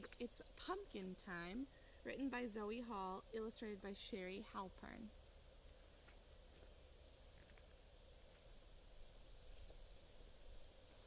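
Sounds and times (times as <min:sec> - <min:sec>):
faint high insect hum: 0:00.0 - 0:11.0
high falling bird chirps: 0:08.5 - 0:10.6.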